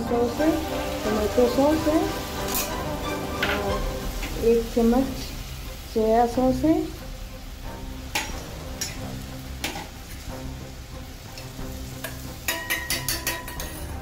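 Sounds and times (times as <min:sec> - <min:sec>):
food sizzling: 0:00.0 - 0:14.0
spoon scraping a pan: 0:02.4 - 0:03.9, 0:12.0 - 0:14.0
spoon stirring in a pan: 0:11.4 - 0:14.0.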